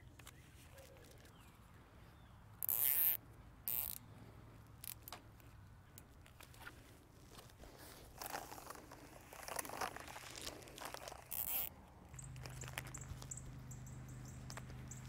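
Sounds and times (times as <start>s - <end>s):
cable tie zipped tight: 2.6s - 4.0s, 8.2s - 11.7s.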